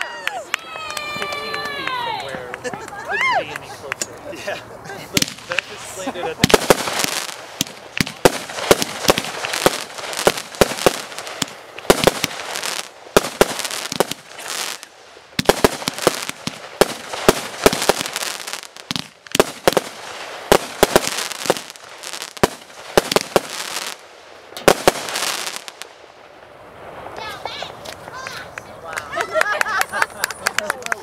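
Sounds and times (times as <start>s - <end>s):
fireworks crackle: 5.0s - 28.8s
fireworks shells bursting: 5.2s - 26.0s.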